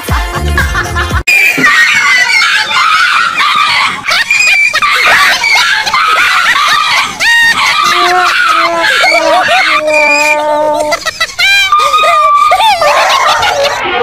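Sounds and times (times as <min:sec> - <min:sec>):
music with heavy bass line: 0:00.0 - 0:01.2
high-pitched screaming: 0:01.3 - 0:14.0.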